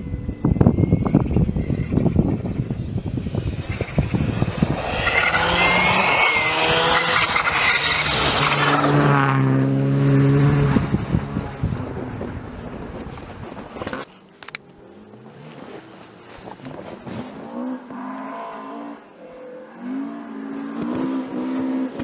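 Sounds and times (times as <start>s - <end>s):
rally car engine passing: 1.6s - 13.0s.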